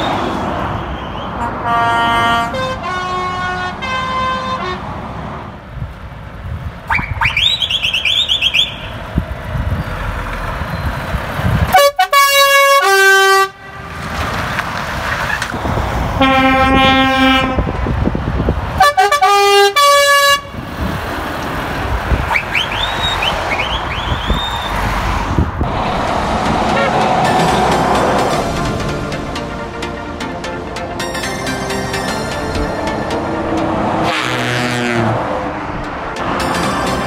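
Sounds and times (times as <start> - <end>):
engine and road noise: 0.0 - 37.0
truck air horn blasts: 0.1 - 5.0, 11.7 - 14.1, 16.2 - 17.8, 18.8 - 20.6, 26.6 - 28.6, 33.9 - 35.3
high rising whistle: 22.3 - 24.9.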